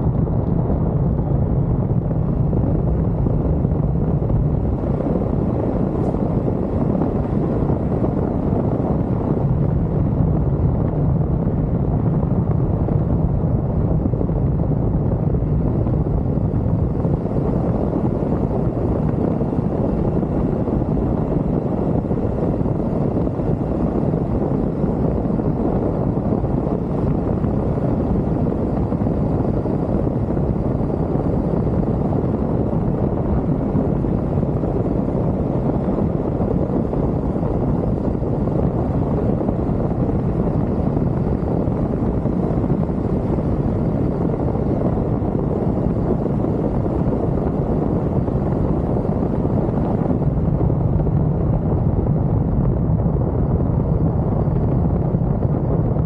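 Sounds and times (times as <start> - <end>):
motorcycle engine drone: 0.0 - 56.0
wind rushing on microphone: 0.0 - 56.0.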